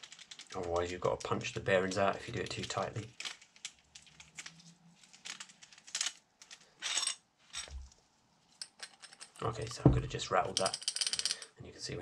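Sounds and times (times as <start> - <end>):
low thump: 9.8 - 10.2.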